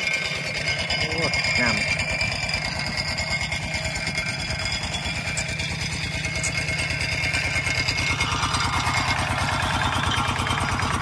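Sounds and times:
engine water pump chugging: 0:00.0 - 0:11.0.

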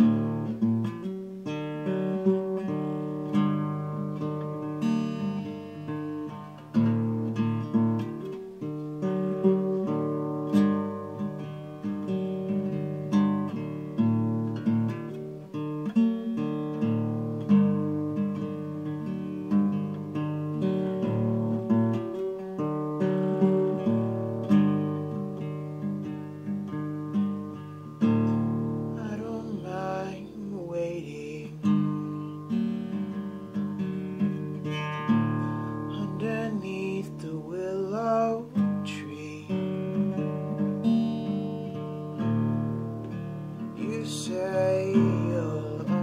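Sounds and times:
acoustic guitar chords: 0:00.0 - 0:46.0
person singing: 0:28.9 - 0:32.3, 0:35.9 - 0:40.3, 0:43.8 - 0:46.0.

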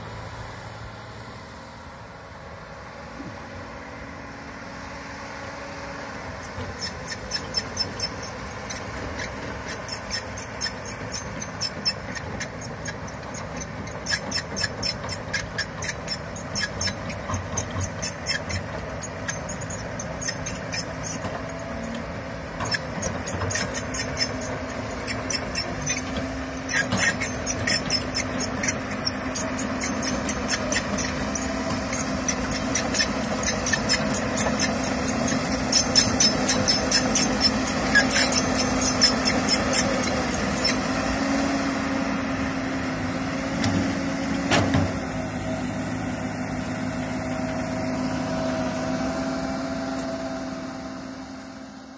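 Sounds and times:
excavator diesel engine running: 0:00.0 - 0:51.9
short high-pitched squeaks: 0:06.4 - 0:41.6.

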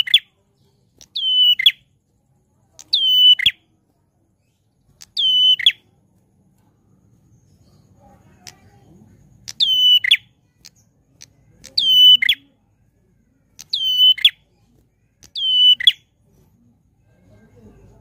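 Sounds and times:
bird whistling song: 0:00.0 - 0:00.3, 0:01.0 - 0:01.9, 0:02.8 - 0:03.7, 0:05.0 - 0:06.0, 0:09.4 - 0:12.5, 0:13.6 - 0:14.6, 0:15.2 - 0:16.1.

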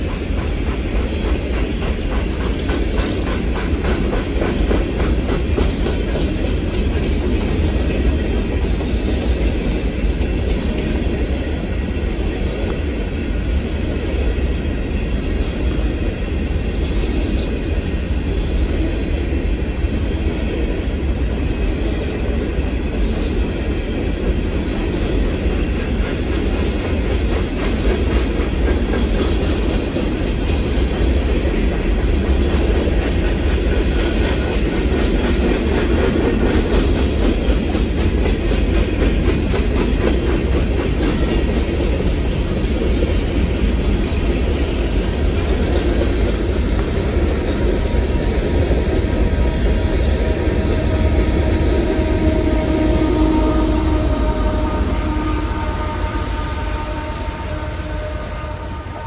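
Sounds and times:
wheels clicking over rail joints: 0:00.0 - 0:11.6
freight train rumbling past: 0:00.0 - 0:59.0.

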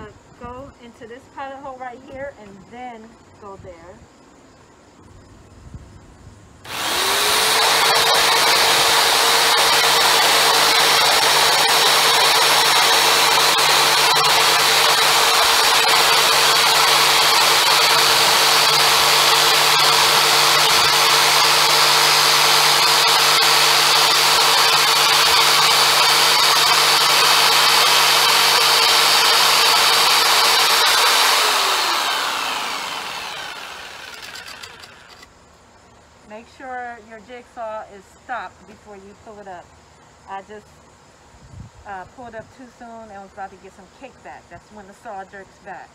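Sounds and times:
saw blade rasping: 0:06.7 - 0:35.2
jigsaw motor whine: 0:06.7 - 0:35.3.

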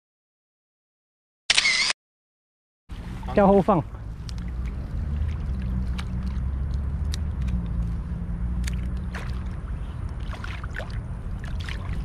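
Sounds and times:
steady low rumble: 0:02.9 - 0:12.0
water splashing and dripping: 0:04.2 - 0:12.0.

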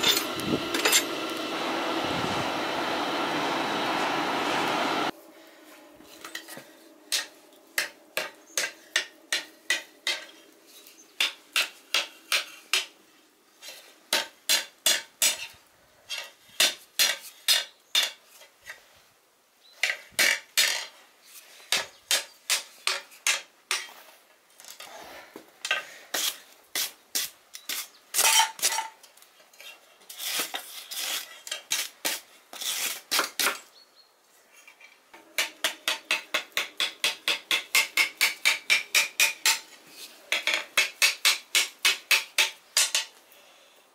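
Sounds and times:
hammer striking steel on anvil: 0:00.0 - 0:01.2.

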